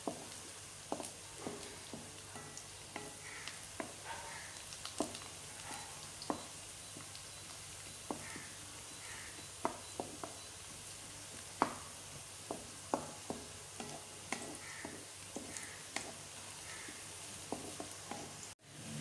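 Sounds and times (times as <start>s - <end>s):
onions sizzling in hot fat: 0.0s - 19.0s
spatula scraping and knocking pot: 0.9s - 7.0s, 8.0s - 8.6s, 9.3s - 10.5s, 11.6s - 18.5s.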